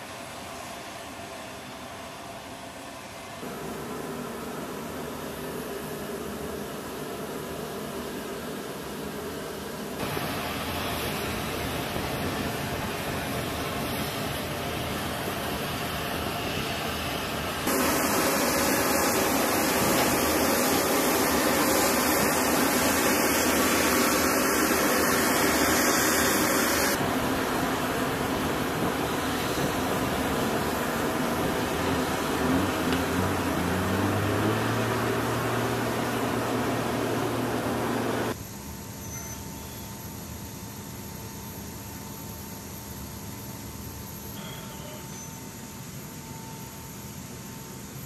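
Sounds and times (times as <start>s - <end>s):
vehicle and aircraft engine noise: 0.0s - 48.0s
low engine hum rising in pitch: 31.2s - 38.4s.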